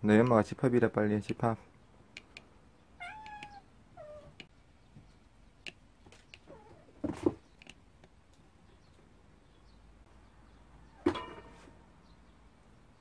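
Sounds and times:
cat meowing: 0:03.0 - 0:04.4.

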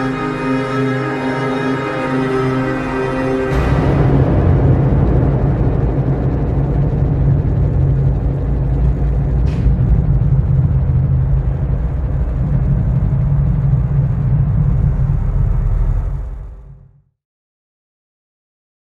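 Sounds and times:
low rumbling electronic drone: 0:00.0 - 0:17.1.

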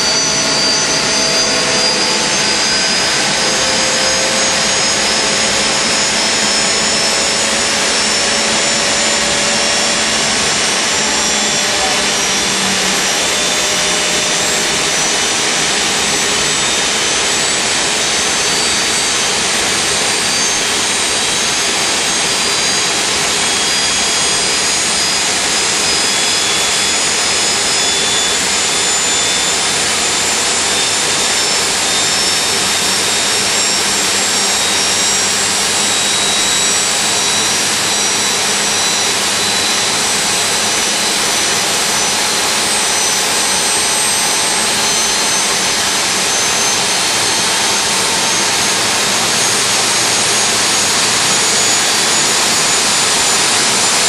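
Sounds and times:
turbine engine whine: 0:00.0 - 0:54.0.

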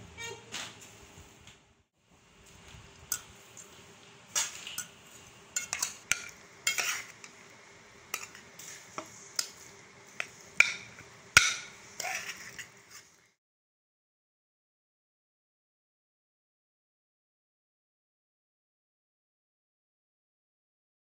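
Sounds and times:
metal spoon scraping steel pot: 0:05.6 - 0:07.4, 0:08.1 - 0:13.2.

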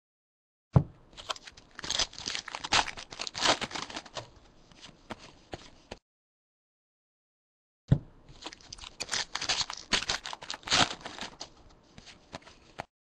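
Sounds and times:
foil wrapper crinkling and tearing: 0:01.2 - 0:04.2, 0:08.4 - 0:11.6
cards being handled: 0:08.4 - 0:12.9.

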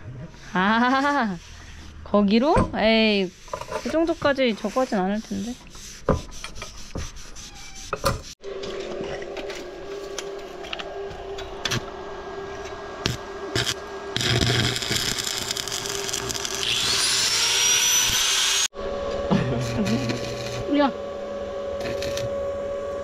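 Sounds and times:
steady welder hum: 0:08.5 - 0:23.0
arc welding crackle and sizzle: 0:09.4 - 0:21.0, 0:21.7 - 0:23.0.

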